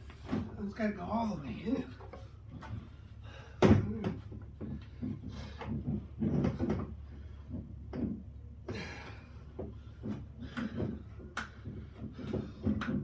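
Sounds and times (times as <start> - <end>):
plastic parts knocking and clattering: 3.6 - 8.8.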